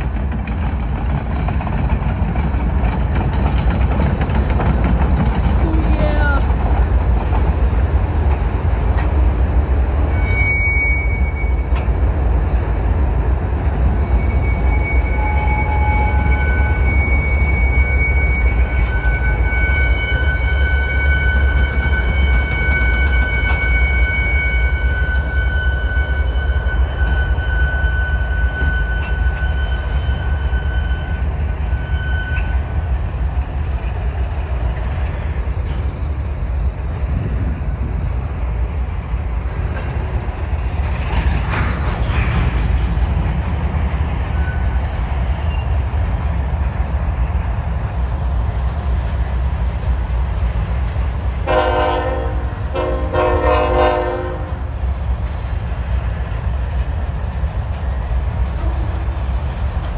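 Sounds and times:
freight train rumbling past: 0:00.0 - 0:59.9
high wheel squeal: 0:10.1 - 0:11.8, 0:14.0 - 0:33.0, 0:45.4 - 0:45.8.

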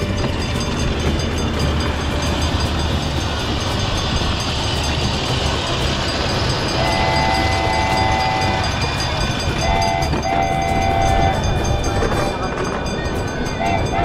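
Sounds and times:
miniature train rumbling on track: 0:00.0 - 0:14.0
two-note train horn: 0:06.4 - 0:12.4, 0:13.6 - 0:14.0.

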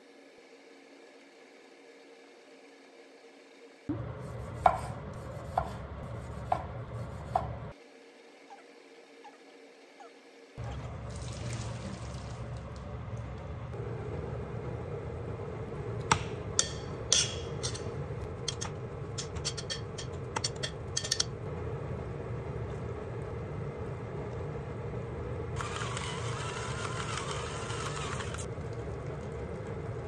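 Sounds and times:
low hum: 0:10.6 - 0:30.0
utensil scraping metal pot: 0:16.6 - 0:21.4
electric salt mill whirring: 0:25.5 - 0:29.8.

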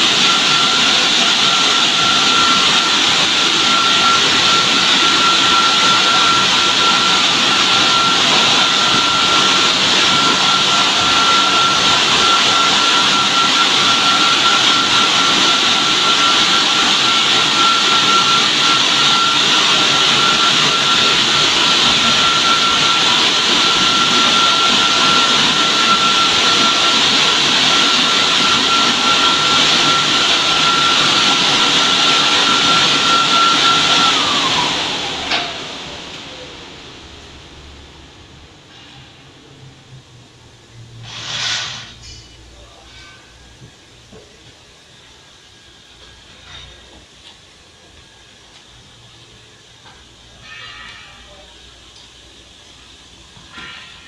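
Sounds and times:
high-pitched motor whine: 0:00.0 - 0:36.6
car wash jets hissing: 0:00.0 - 0:50.6.

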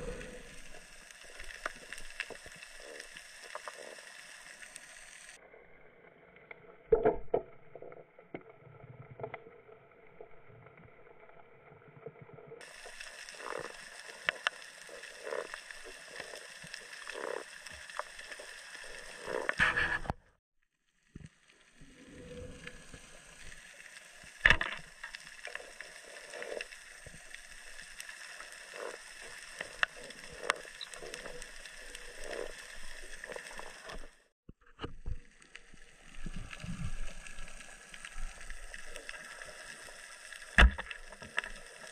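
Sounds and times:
underwater hum: 0:00.0 - 0:20.2, 0:20.9 - 0:41.9
underwater clicks and knocks: 0:40.5 - 0:41.5.

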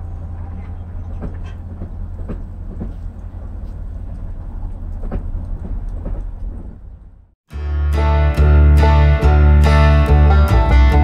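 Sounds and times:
vehicles crossing railroad tracks: 0:00.0 - 0:07.4
low traffic rumble: 0:00.0 - 0:11.0.

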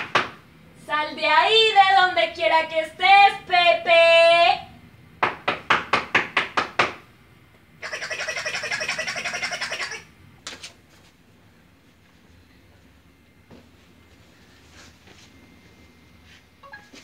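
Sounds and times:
knuckles knocking on door: 0:05.2 - 0:07.0.

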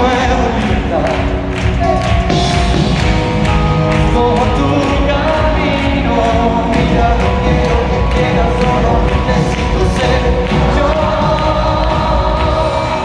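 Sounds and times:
man singing: 0:00.0 - 0:02.1, 0:03.4 - 0:13.0
pop-rock band playing: 0:00.0 - 0:13.0
steady drum beat: 0:00.0 - 0:13.0.

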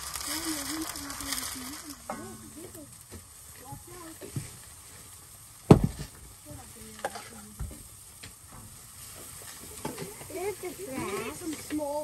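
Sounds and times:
batter sizzling in a skillet: 0:00.0 - 0:12.0.

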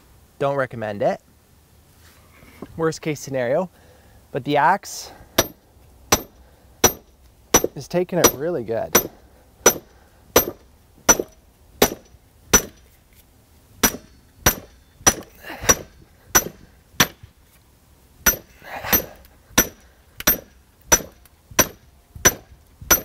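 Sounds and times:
hammer clanking on axe head: 0:05.4 - 0:07.0, 0:07.6 - 0:12.8, 0:13.8 - 0:17.2, 0:18.3 - 0:23.0.

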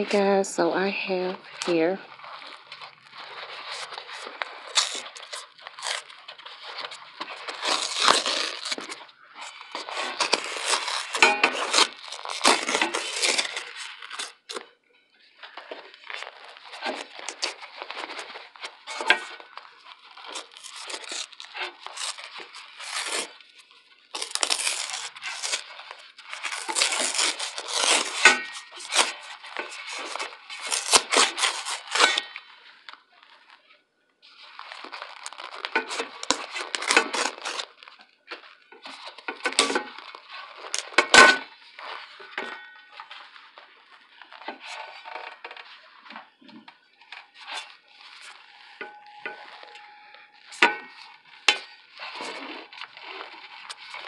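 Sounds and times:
cardboard and paper tearing: 0:01.1 - 0:14.7, 0:15.5 - 0:32.7, 0:34.4 - 0:46.1, 0:47.3 - 0:54.0.

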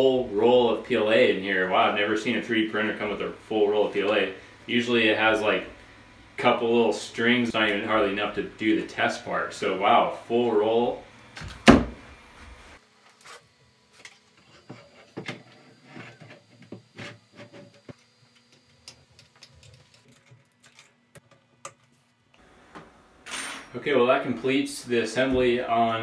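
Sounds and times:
clicks and knocks of parts: 0:17.8 - 0:22.0.

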